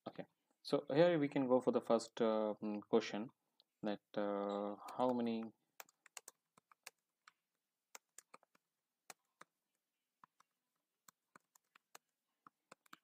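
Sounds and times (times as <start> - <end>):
faint keyboard typing: 4.6 - 13.0.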